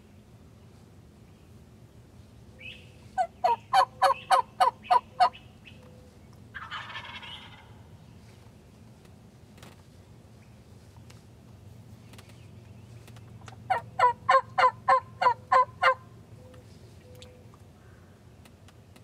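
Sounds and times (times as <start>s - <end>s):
turkey gobble: 2.6s - 5.4s, 6.6s - 7.8s, 13.6s - 16.0s
turkey yelps: 2.6s - 5.4s, 6.6s - 7.8s, 13.7s - 16.0s.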